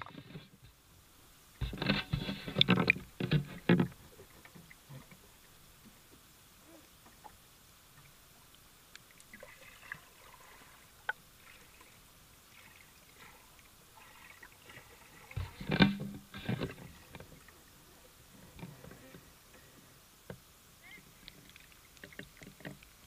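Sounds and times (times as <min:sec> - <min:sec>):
faint ticks: 0:07.0 - 0:09.5, 0:21.2 - 0:23.0
muffled underwater knocks: 0:15.3 - 0:16.8.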